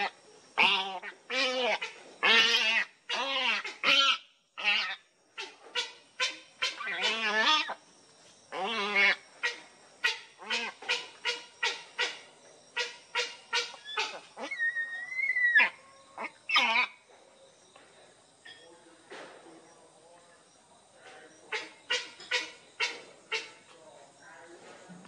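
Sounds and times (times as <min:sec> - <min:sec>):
heron squawking: 0:08.5 - 0:12.2, 0:12.8 - 0:17.0.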